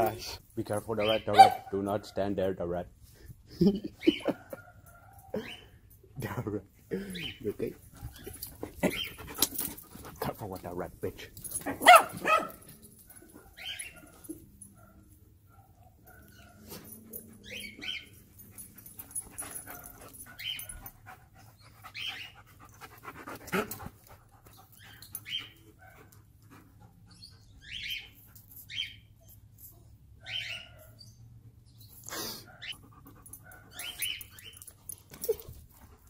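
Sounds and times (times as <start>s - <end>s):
dogs whining and yelping: 3.9s - 6.0s, 8.0s - 10.1s, 11.4s - 36.0s.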